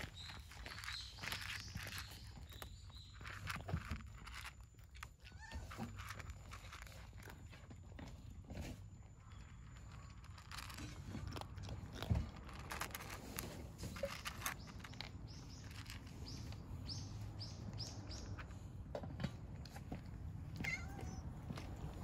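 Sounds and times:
small bird chirping: 0.0 - 7.3, 9.2 - 18.6
cats crunching dry food: 0.0 - 22.0.

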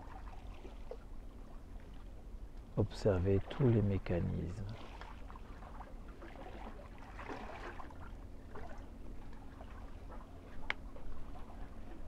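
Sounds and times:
small waves lapping: 0.0 - 12.0.

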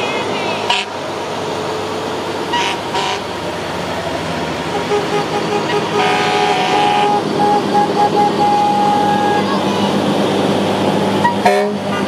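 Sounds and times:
truck engine and road noise: 0.0 - 12.0
fire truck horn blasts: 0.7 - 1.0, 2.5 - 3.3, 4.7 - 9.7, 11.2 - 12.0.

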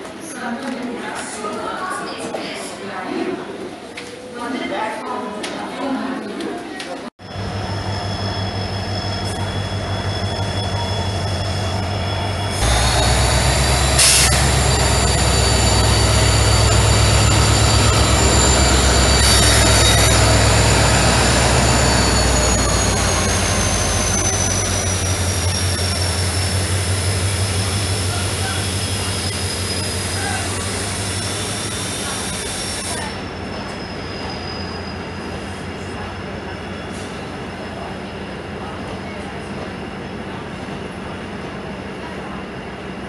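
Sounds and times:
high-pitched wheel squeal: 7.2 - 35.6
diesel locomotive engine drone: 7.2 - 43.0.

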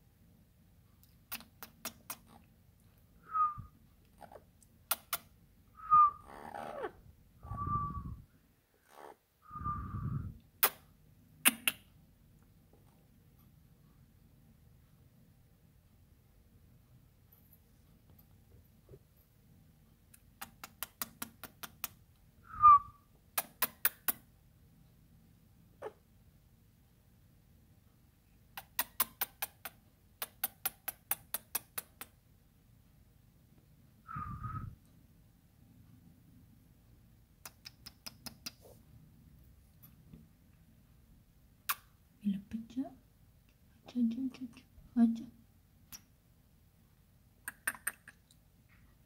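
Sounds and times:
parrot clicks: 11.4 - 11.8
parrot whistle: 22.5 - 23.0.

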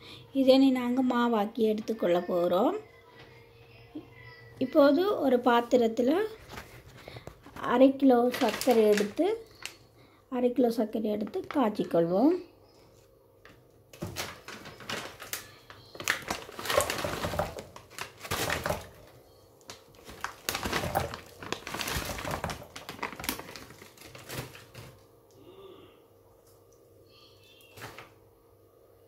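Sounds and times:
plastic bag crinkling: 6.4 - 9.9, 13.9 - 25.1.

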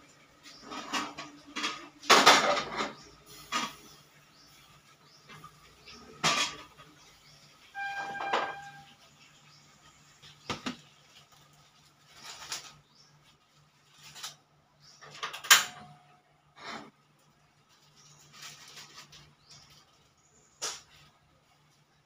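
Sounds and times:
dishes and utensils clattering: 0.5 - 3.9, 5.3 - 7.0, 7.8 - 9.0
short metallic ring: 7.8 - 8.9.

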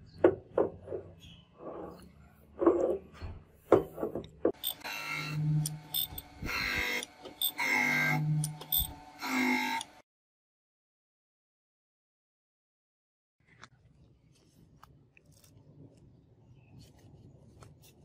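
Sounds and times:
grinder wheel grinding metal: 4.6 - 10.0.

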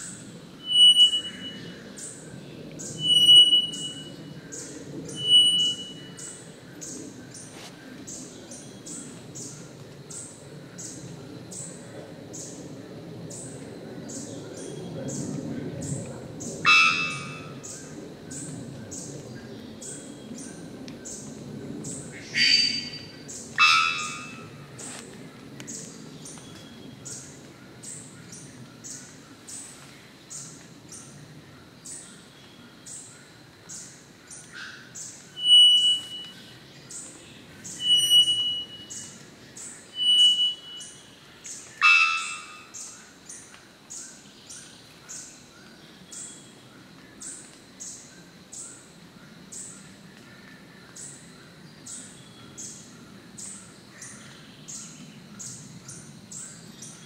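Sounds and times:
bird whistles: 0.6 - 1.6, 3.0 - 4.1, 5.1 - 6.1, 35.4 - 36.4, 37.8 - 39.1, 40.0 - 41.0.

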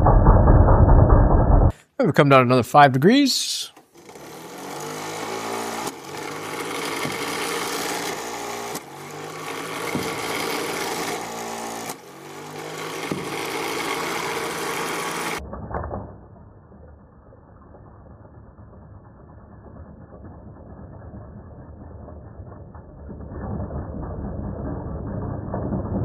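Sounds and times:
electric motor whirring: 4.0 - 15.4.

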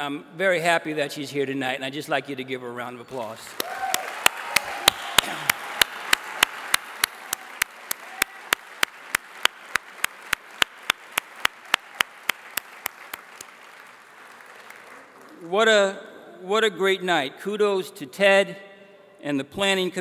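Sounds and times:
person clapping near microphone: 3.5 - 15.5
audience applause: 3.5 - 15.6.

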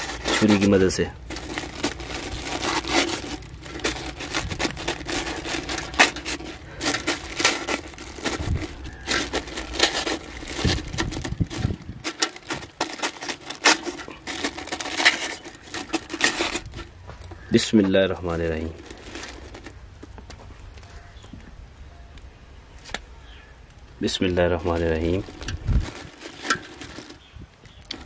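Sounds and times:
knife poking through paper: 0.0 - 11.0
paper crinkling: 0.0 - 21.4, 24.0 - 28.0.

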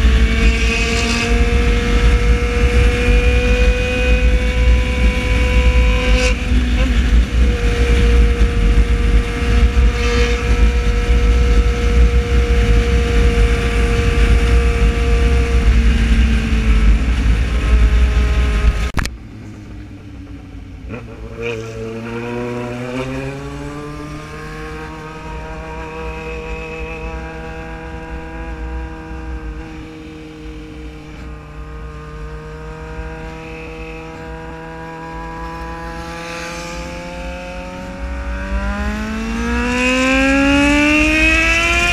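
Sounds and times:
motorcycle engine: 0.0 - 41.9
wind rumble on microphone: 0.0 - 41.9.

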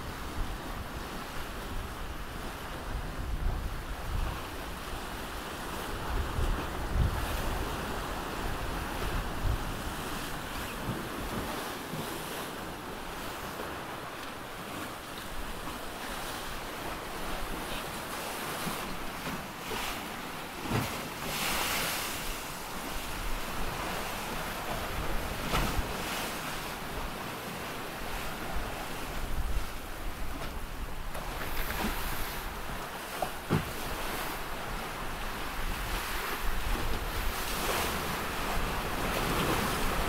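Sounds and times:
wind buffeting microphone: 0.0 - 11.7.

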